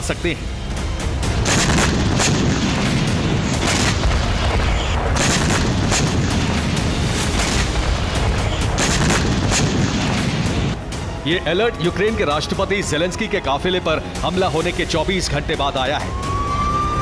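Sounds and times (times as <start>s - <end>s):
background music: 0.0s - 17.0s
gunshots: 1.3s - 10.8s
explosions booming: 1.4s - 10.8s.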